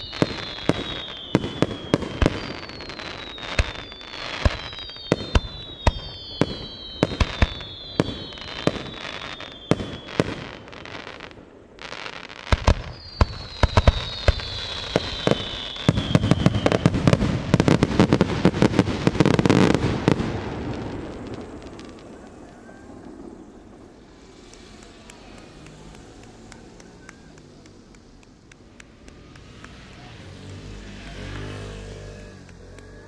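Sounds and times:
falling whistles: 0.0s - 10.9s, 12.7s - 17.7s
fireworks bursting with sharp bangs: 0.0s - 33.0s
fireworks crackling: 0.0s - 33.0s.

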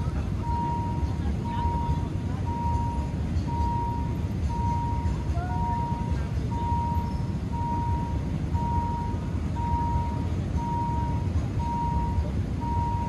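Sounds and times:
constant low rumble: 0.0s - 13.0s.

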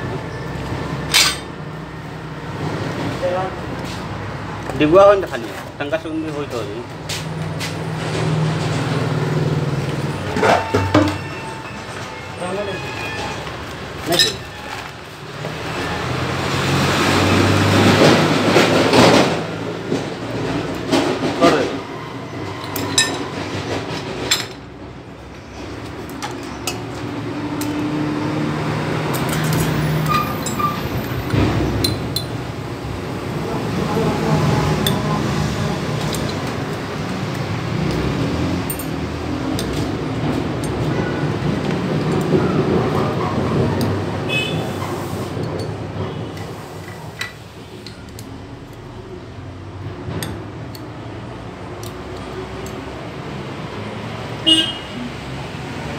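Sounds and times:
road traffic: 0.0s - 55.9s
steady background noise: 0.0s - 55.9s
metal clutch plates clinking: 1.0s - 1.6s, 36.0s - 38.0s, 38.6s - 42.3s.

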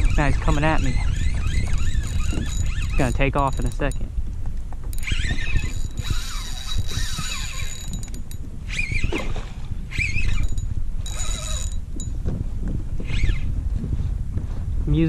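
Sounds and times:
fishing reel drag buzzing: 0.0s - 4.0s, 4.9s - 12.1s, 13.0s - 13.5s.

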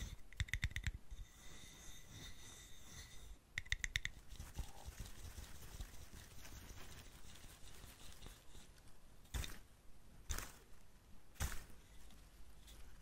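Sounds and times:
fingertips scratching: 0.0s - 8.8s
fingertips tapping on flowerpot: 0.3s - 1.0s, 3.6s - 5.0s.

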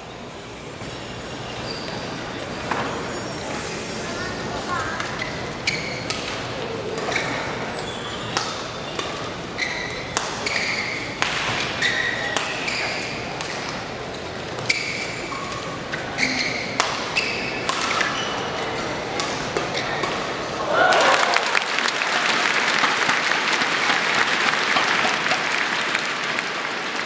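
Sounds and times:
shoes squeaking on court: 0.7s - 20.4s
rackets striking shuttlecock: 4.9s - 7.5s, 8.2s - 13.9s, 14.5s - 20.4s.

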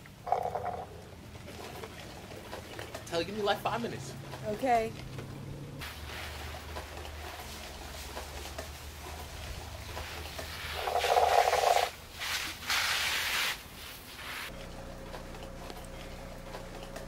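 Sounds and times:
slurping through a straw: 5.8s - 12.6s.

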